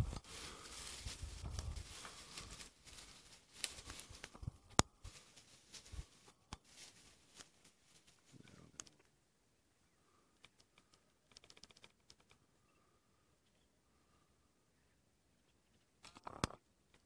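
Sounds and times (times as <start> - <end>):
faint rustling: 0.0 - 9.1
sharp clicks: 10.4 - 12.4.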